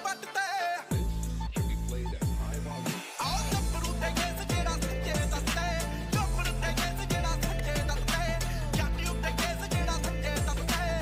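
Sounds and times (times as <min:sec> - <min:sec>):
beat with sliding bass hits: 0:00.9 - 0:11.0.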